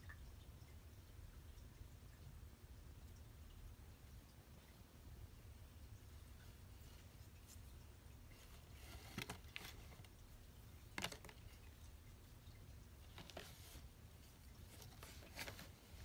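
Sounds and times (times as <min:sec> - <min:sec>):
cardboard and paper rustling: 0:08.4 - 0:10.1, 0:11.0 - 0:11.6, 0:13.1 - 0:16.0.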